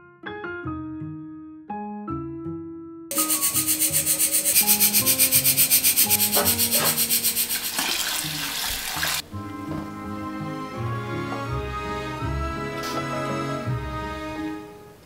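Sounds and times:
pressure cooker whistling: 3.1s - 8.0s.

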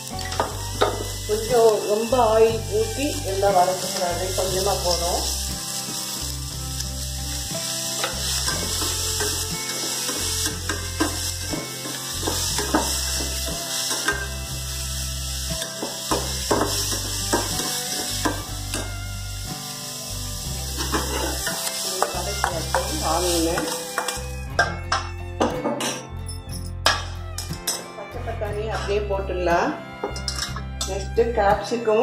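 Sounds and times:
onions sizzling in hot oil: 0.0s - 24.8s
metal spoon scraping a pan: 7.8s - 14.4s, 20.7s - 25.1s, 30.0s - 31.1s.

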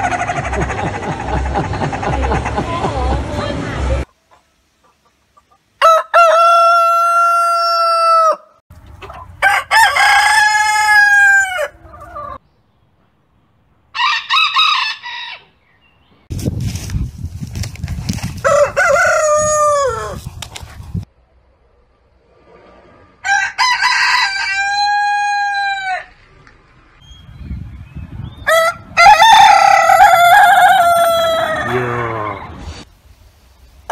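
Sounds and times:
roosters crowing: 5.8s - 8.6s, 9.3s - 12.4s, 13.9s - 15.7s, 18.3s - 20.2s, 23.2s - 26.2s, 28.4s - 32.5s.

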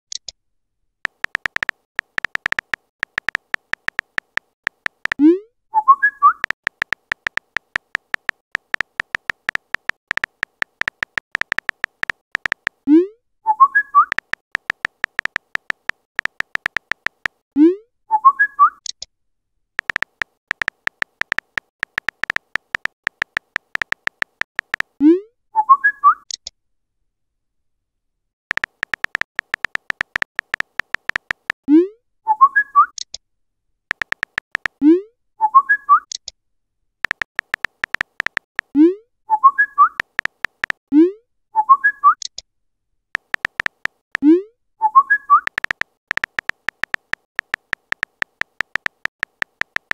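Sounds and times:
keyboard typing clicks: 1.0s - 5.3s, 6.2s - 12.8s, 13.8s - 17.4s, 19.8s - 25.0s, 28.5s - 31.6s, 33.9s - 34.8s, 37.0s - 38.8s, 39.8s - 40.8s, 43.2s - 44.2s, 45.1s - 49.9s.

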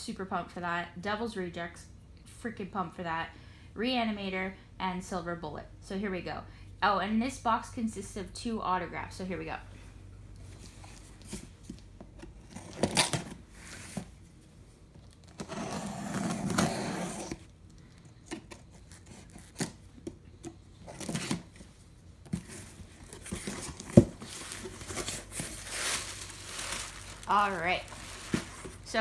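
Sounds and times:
cardboard scraping and rustling: 15.2s - 17.5s, 20.8s - 28.9s.

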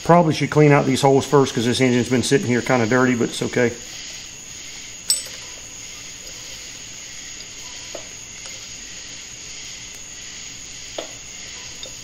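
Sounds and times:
steady hiss: 0.0s - 12.0s
sharp metal click: 5.1s - 5.4s.

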